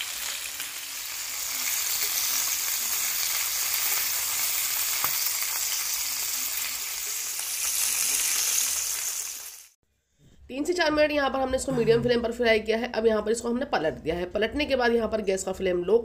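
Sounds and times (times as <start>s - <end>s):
chicken sizzling in a frying pan: 0.0s - 9.8s.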